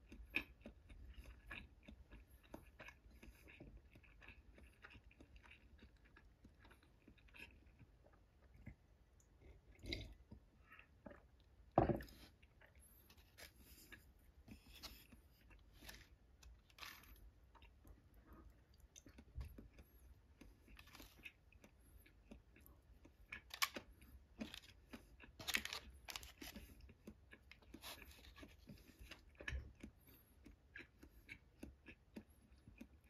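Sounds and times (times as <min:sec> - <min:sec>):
soft chewing: 0:00.0 - 0:33.0.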